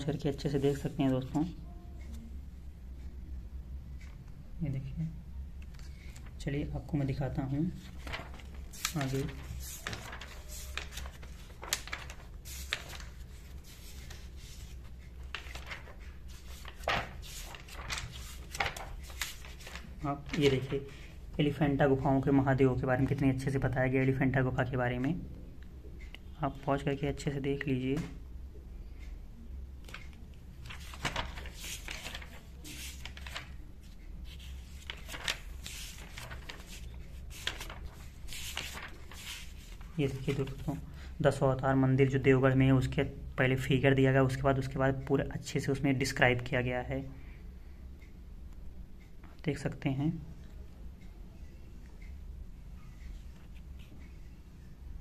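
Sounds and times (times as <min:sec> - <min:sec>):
book pages turning: 0:05.6 - 0:06.4, 0:07.1 - 0:20.7, 0:29.8 - 0:40.8.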